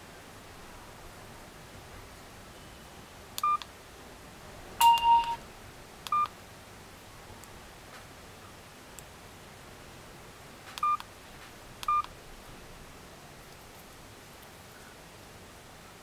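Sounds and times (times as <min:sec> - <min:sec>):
phone key-tone beeps: 0:04.8 - 0:05.4.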